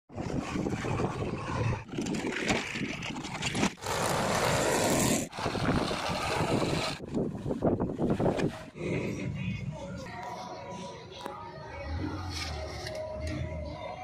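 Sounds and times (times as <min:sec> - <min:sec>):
diesel engines running: 0:00.1 - 0:10.2.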